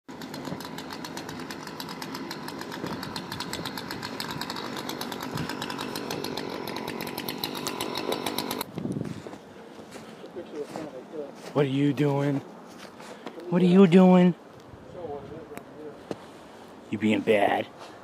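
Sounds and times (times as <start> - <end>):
small engine running: 0.1 - 8.7.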